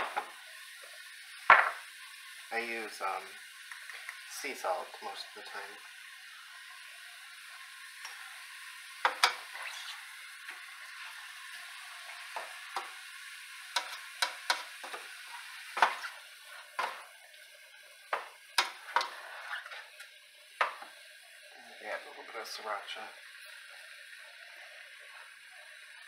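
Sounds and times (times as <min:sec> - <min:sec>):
meat sizzling in a pot: 0:00.0 - 0:26.0
spatula scraping a pot: 0:13.8 - 0:17.0, 0:18.6 - 0:19.9.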